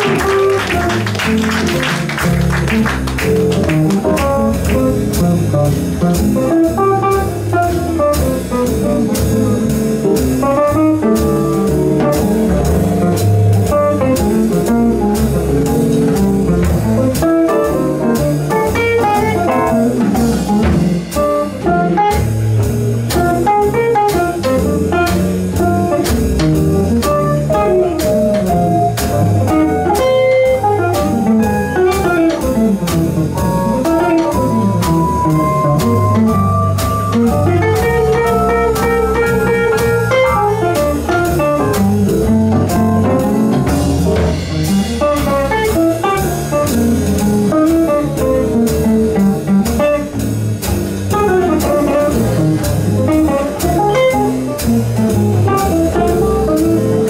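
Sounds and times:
piano chords: 0.0s - 57.0s
walking upright bass: 0.0s - 57.0s
drums with ride cymbal: 4.0s - 57.0s.

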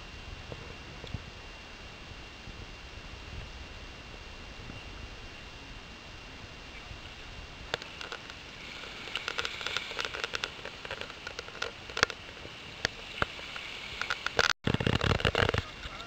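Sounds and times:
scuba gear clicks and rattles: 7.7s - 16.0s.

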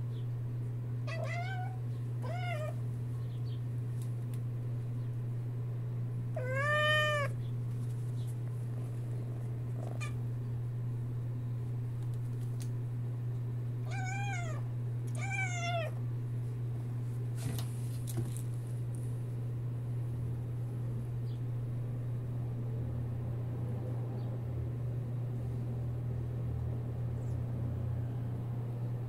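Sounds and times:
steady low hum: 0.0s - 29.0s
kitten chirping meows: 1.1s - 2.8s, 6.3s - 7.4s, 13.8s - 16.0s.

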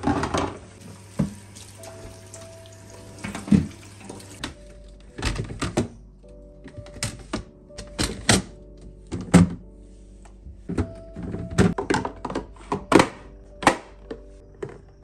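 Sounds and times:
soft background music: 0.0s - 15.0s
plastic drawers knocking: 9.1s - 9.7s, 10.7s - 14.8s.

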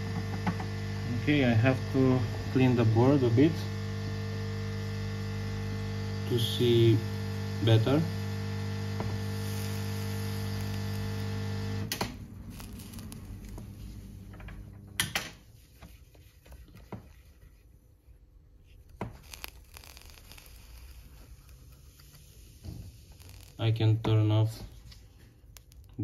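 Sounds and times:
electrical mains hum: 0.0s - 15.5s
swab scrubbing circuit board: 19.1s - 23.6s.

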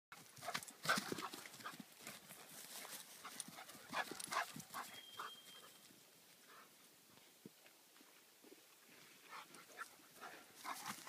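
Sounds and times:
dog paws thudding on grass: 0.2s - 5.6s.

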